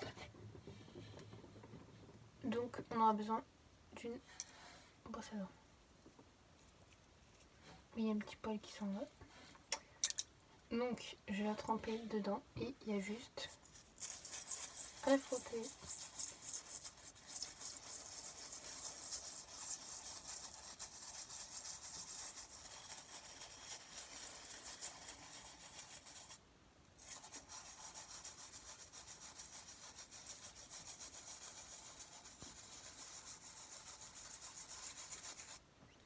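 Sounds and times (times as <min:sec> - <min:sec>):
toothbrush scrubbing a shell: 0:12.9 - 0:26.4, 0:27.0 - 0:35.6.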